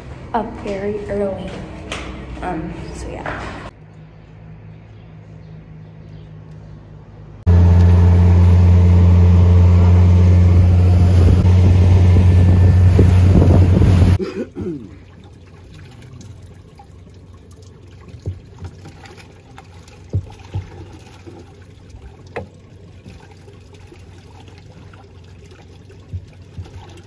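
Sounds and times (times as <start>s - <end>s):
water lapping against boat hull: 11.0s - 27.0s.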